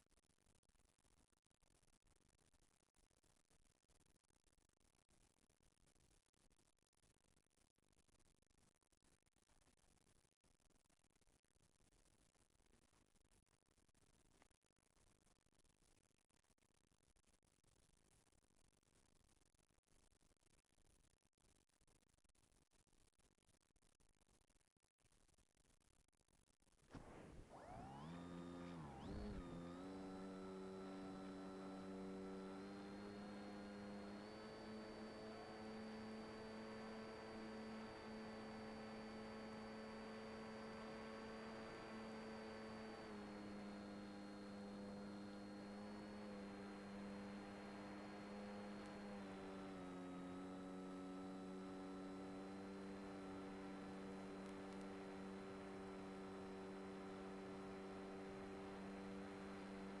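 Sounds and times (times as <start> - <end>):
electric motor and propeller humming: 27.0 - 60.0.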